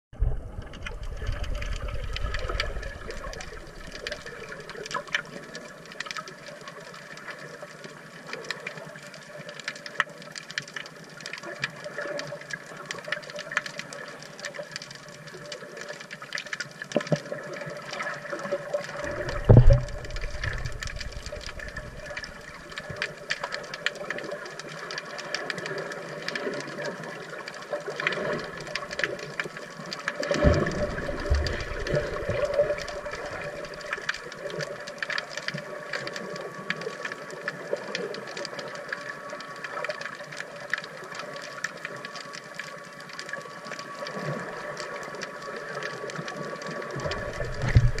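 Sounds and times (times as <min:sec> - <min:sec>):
underwater hum: 0:00.1 - 0:48.0
fine crackling clicks: 0:00.2 - 0:48.0
dull low thumps: 0:47.4 - 0:48.0.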